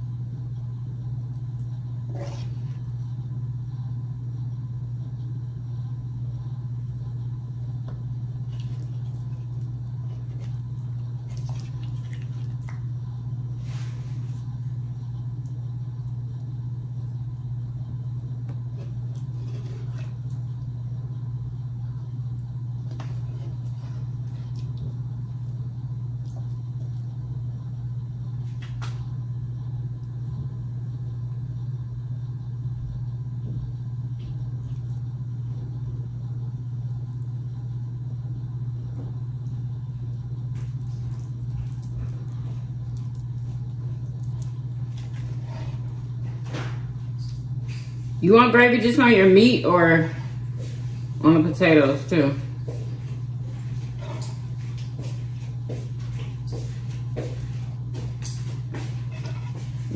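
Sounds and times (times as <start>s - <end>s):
low hum: 0.0s - 59.9s.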